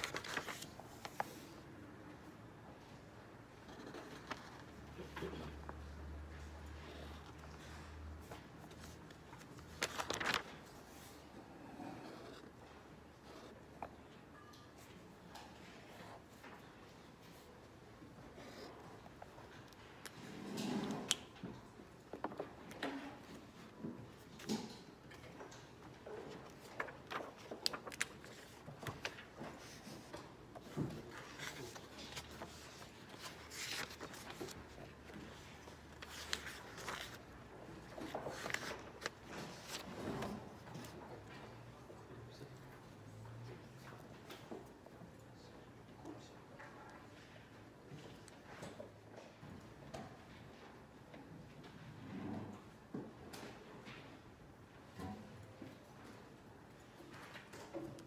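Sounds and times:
book page turning: 0.0 - 1.6, 3.6 - 5.4, 6.8 - 11.2, 11.8 - 12.5, 26.2 - 40.9
paper handling: 0.0 - 1.6, 3.6 - 5.8, 6.4 - 11.3, 24.4 - 41.0
pen scratching on paper: 11.9 - 12.5.

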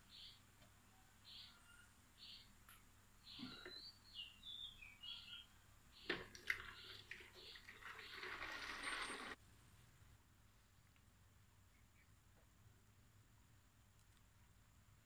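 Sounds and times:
birds chirping: 0.0 - 0.5, 1.2 - 2.6, 3.2 - 9.4.

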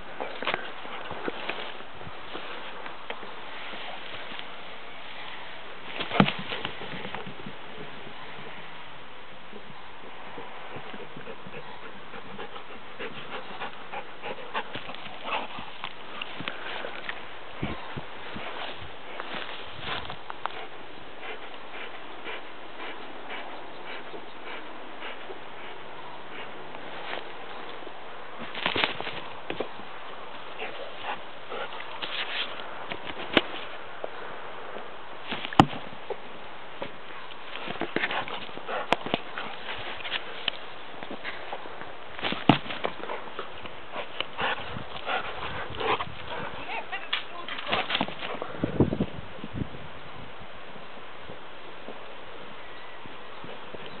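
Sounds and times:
scuffs and clicks on loose soil: 0.0 - 8.0, 14.4 - 22.2, 26.6 - 48.9
dog scrabbling at soil: 5.9 - 7.6, 28.4 - 29.8, 30.4 - 33.8, 36.9 - 48.6
dog panting: 10.7 - 17.0, 20.5 - 26.6, 37.6 - 40.6, 42.8 - 48.0.

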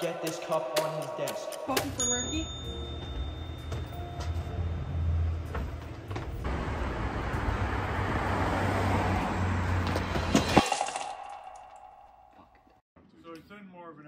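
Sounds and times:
low traffic hum: 3.2 - 10.6
passing car rushing: 6.4 - 10.6.

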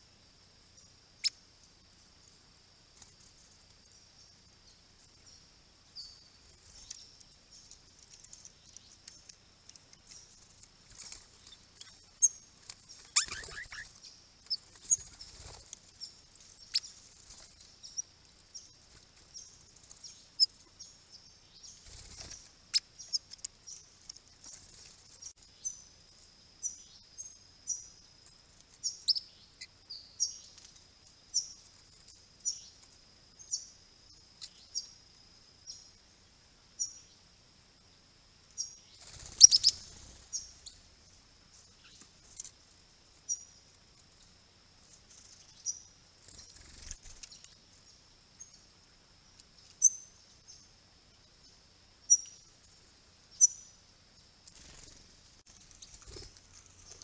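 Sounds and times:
small birds chirping: 0.0 - 57.0
wings fluttering: 2.9 - 3.8, 6.4 - 20.8, 21.7 - 25.5, 38.9 - 47.6, 54.4 - 57.0.

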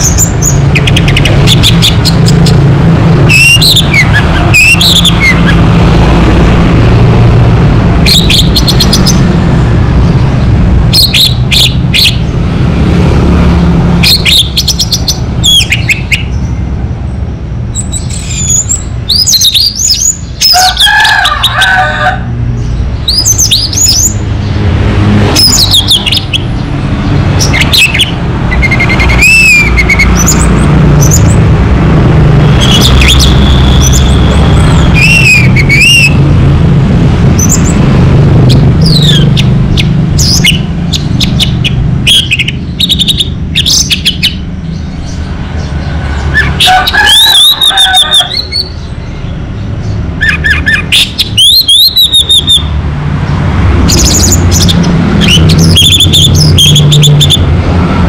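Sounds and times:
thrush singing: 0.0 - 16.6, 17.8 - 58.0
low rumble: 0.0 - 19.1, 22.2 - 46.7.

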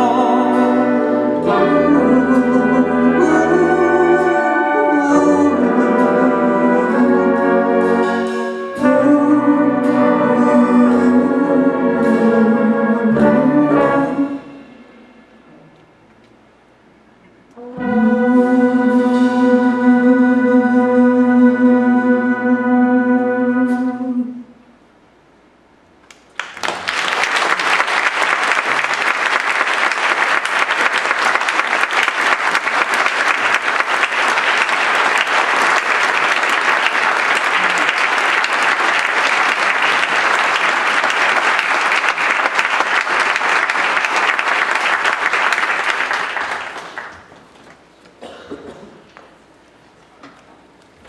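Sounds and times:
audience applauding: 26.1 - 47.5.

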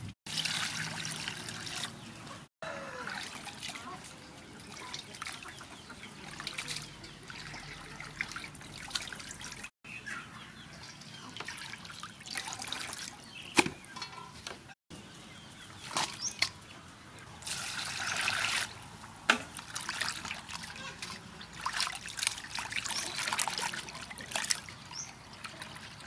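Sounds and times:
water splashing: 0.0 - 2.0, 3.0 - 9.7, 11.1 - 13.4, 17.4 - 26.0
water dripping and sloshing: 0.3 - 2.1, 3.0 - 9.7, 10.8 - 14.2, 17.4 - 26.0.

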